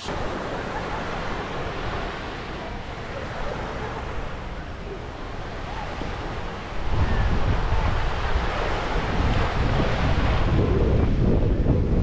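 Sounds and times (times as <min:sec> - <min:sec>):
ocean surf: 0:00.0 - 0:12.0
wind buffeting the microphone: 0:00.0 - 0:12.0.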